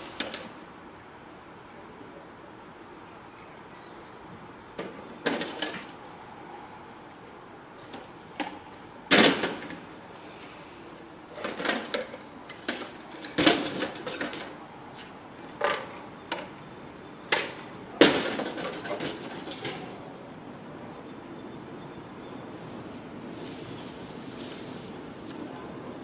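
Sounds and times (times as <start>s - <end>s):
crates banging into metal truck bed: 4.8s - 5.9s, 8.4s - 9.9s, 11.4s - 14.6s, 17.3s - 20.0s.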